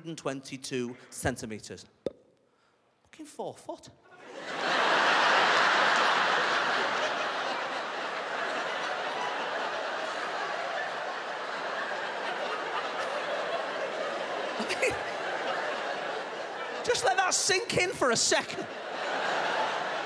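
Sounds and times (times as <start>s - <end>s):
audience laughing: 4.2s - 20.0s.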